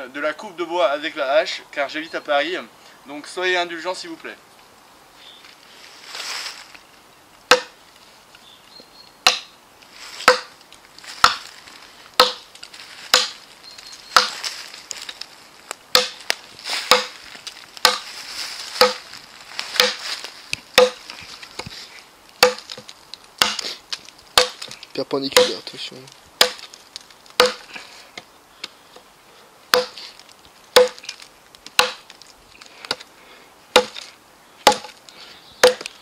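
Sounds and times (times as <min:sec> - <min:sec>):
axe chopping log: 0:07.5 - 0:07.8, 0:09.2 - 0:09.5, 0:10.2 - 0:10.6, 0:11.2 - 0:11.5, 0:12.2 - 0:12.5, 0:13.1 - 0:13.4, 0:14.2 - 0:14.4, 0:15.9 - 0:17.2, 0:17.8 - 0:18.1, 0:18.8 - 0:19.1, 0:19.8 - 0:20.0, 0:20.8 - 0:21.0, 0:22.4 - 0:24.8, 0:25.4 - 0:25.6, 0:26.4 - 0:26.8, 0:27.4 - 0:27.7, 0:29.7 - 0:30.1, 0:30.7 - 0:32.2, 0:33.7 - 0:35.0, 0:35.6 - 0:35.9.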